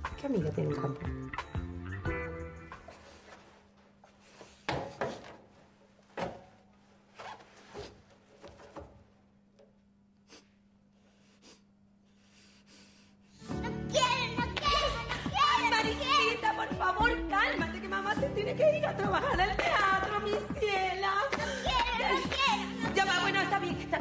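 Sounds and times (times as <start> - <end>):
cloth rubbing and rustling: 5.3 - 9.2.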